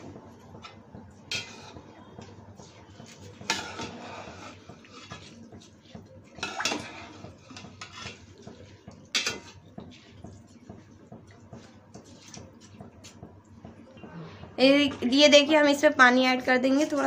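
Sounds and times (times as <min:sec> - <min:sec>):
metal spoon scraping a pot: 0:00.6 - 0:01.9, 0:03.2 - 0:05.4, 0:06.4 - 0:08.4, 0:09.1 - 0:10.2.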